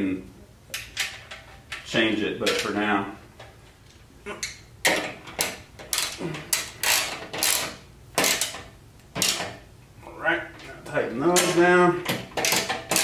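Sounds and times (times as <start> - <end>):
ratchet wrench clicking: 5.9 - 8.6.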